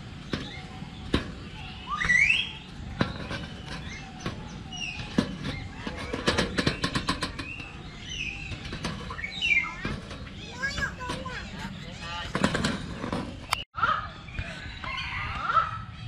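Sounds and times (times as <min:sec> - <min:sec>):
rising bird chirps: 0:00.3 - 0:06.0.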